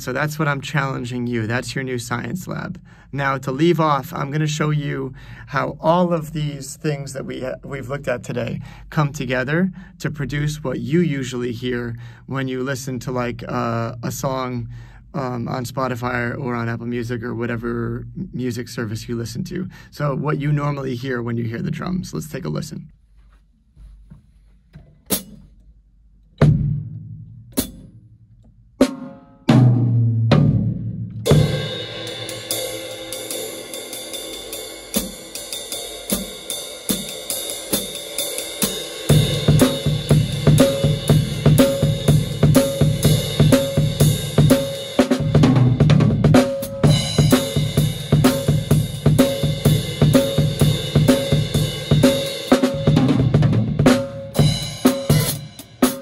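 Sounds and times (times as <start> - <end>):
drum kit beat: 24.0 - 25.6, 26.4 - 56.0.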